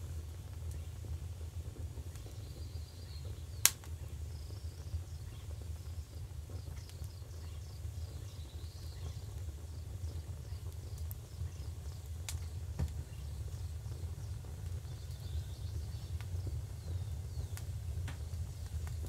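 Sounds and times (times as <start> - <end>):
steady low rumble: 0.0 - 19.0
starlings chirping: 6.2 - 19.0.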